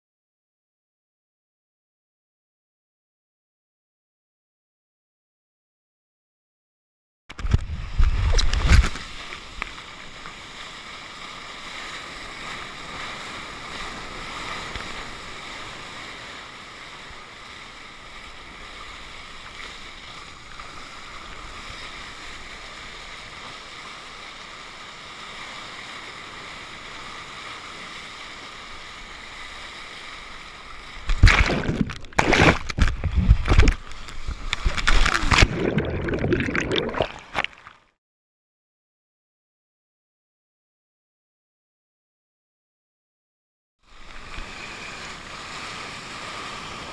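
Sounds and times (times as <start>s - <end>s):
water splashing on camera: 7.3s - 10.9s, 30.1s - 37.9s
muffled rush of seawater: 7.3s - 37.8s, 43.8s - 46.9s.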